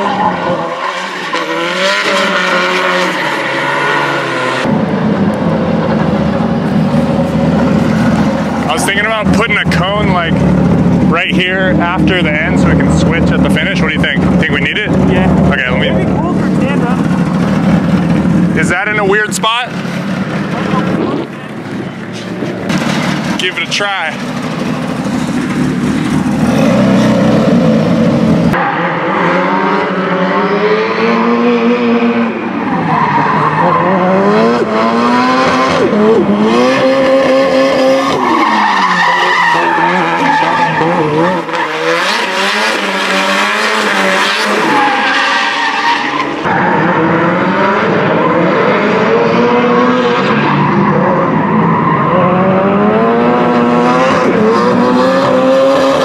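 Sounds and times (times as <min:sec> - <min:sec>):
tyres squealing on asphalt: 0:00.0 - 0:04.7, 0:32.4 - 0:49.0, 0:50.0 - 0:56.0
car engine revving: 0:00.0 - 0:56.0.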